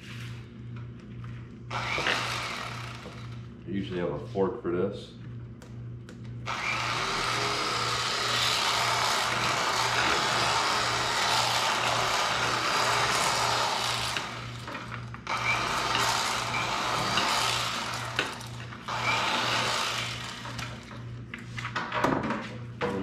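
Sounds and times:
electric knife motor buzzing: 1.7s - 3.5s, 6.4s - 20.9s.

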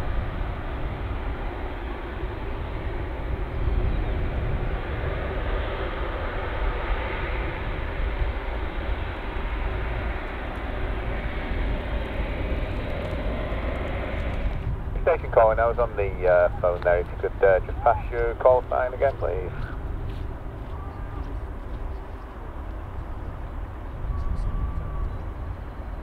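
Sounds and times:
jet engine rumble: 0.0s - 26.0s.

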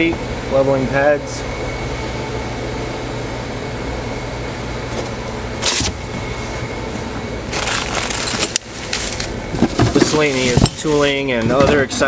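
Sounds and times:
steady low hum: 0.0s - 12.0s
cardboard box rustling: 5.6s - 12.0s
bubble wrap rustling: 7.5s - 11.2s.

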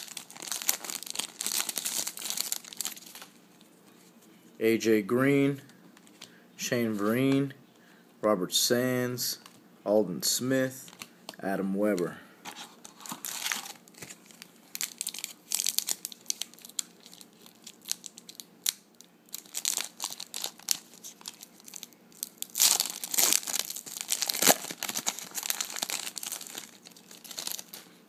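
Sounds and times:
foil wrapper crinkling: 0.0s - 3.4s, 12.5s - 28.0s.

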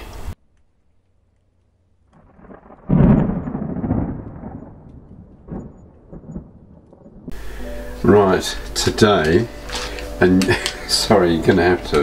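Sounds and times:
deep fiery burst: 2.2s - 7.4s.

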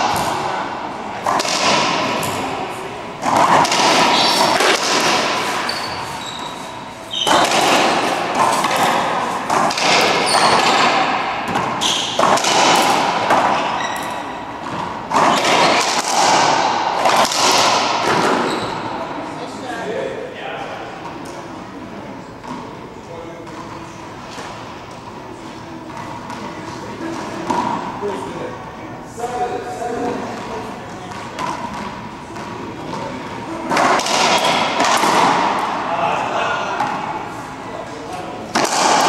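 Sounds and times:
racquetball cracking off racquets: 0.0s - 2.6s, 3.2s - 19.1s, 25.8s - 28.0s, 30.3s - 35.9s, 38.4s - 39.0s.

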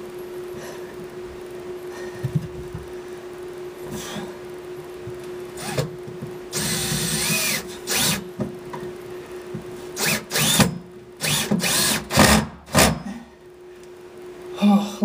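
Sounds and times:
power drill driving screws: 6.5s - 8.2s, 10.0s - 13.0s.

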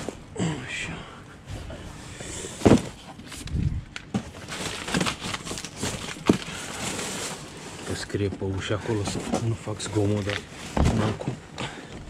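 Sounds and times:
boxes and trolley knocking: 2.5s - 3.1s, 10.7s - 12.0s.

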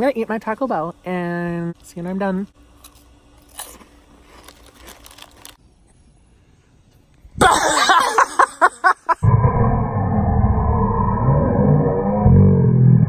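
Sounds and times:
person laughing or yelling: 7.4s - 9.3s.

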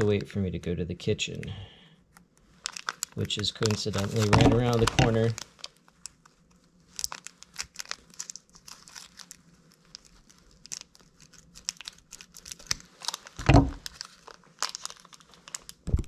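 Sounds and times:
plastic packaging crinkling: 2.5s - 16.0s
loud thump: 13.4s - 13.8s.

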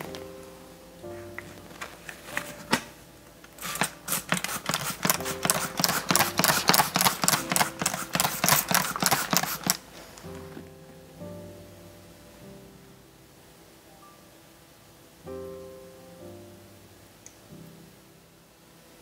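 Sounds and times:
spray bottle hissing sprays: 3.6s - 9.8s.

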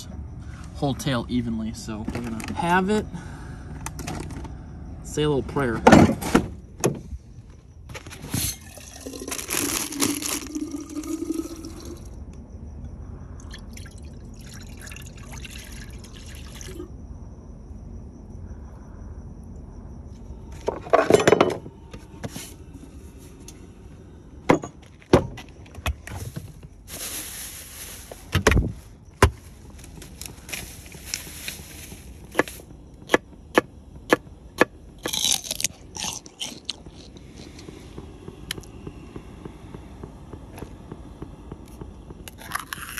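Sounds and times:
rustling: 26.1s - 32.6s.

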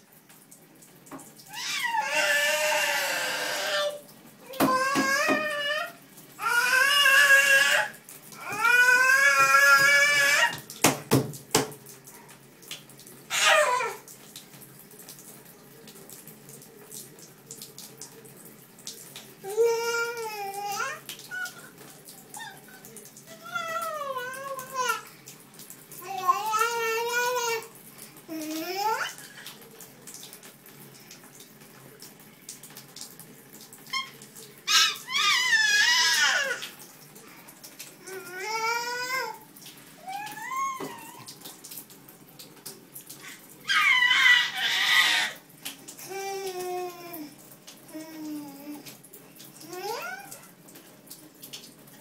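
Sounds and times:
toddler splashing bath water: 0.0s - 52.0s
toddler squealing: 1.5s - 4.0s, 13.3s - 14.0s, 33.9s - 36.6s, 40.0s - 41.3s, 43.6s - 45.4s.

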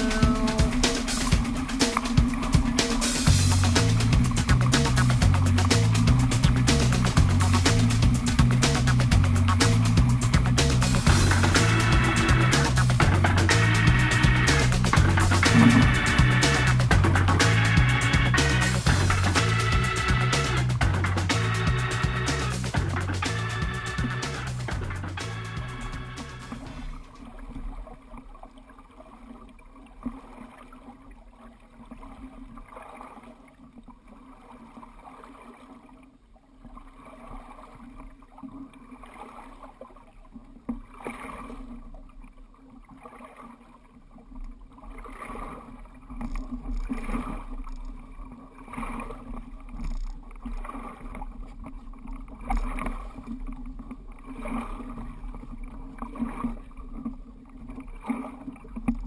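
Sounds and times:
low rumble: 0.0s - 27.2s
water slapping against hull: 0.0s - 59.0s
water splashes: 0.0s - 59.0s.

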